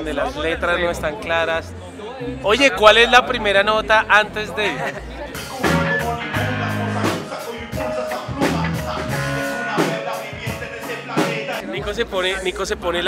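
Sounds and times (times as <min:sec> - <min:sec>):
rock band music: 0:05.3 - 0:11.6
drum kit hits: 0:05.4 - 0:11.6.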